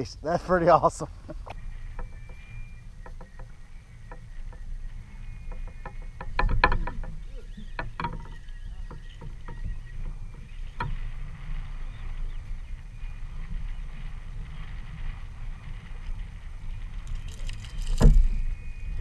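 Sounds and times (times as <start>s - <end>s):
light clicks and knocks: 1.3s - 11.1s.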